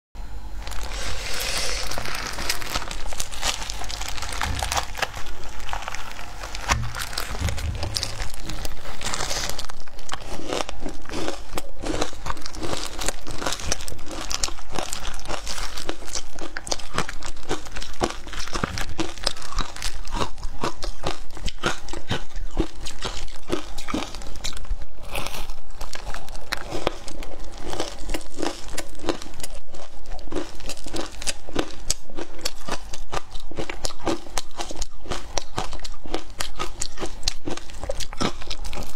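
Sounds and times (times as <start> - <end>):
ice crunching and crackling: 0.6 - 11.4.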